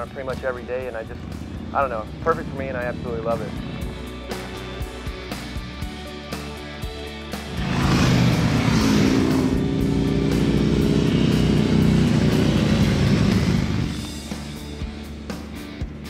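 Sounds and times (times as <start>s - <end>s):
background music: 0.0s - 16.0s
motorcycles riding past: 7.4s - 14.2s.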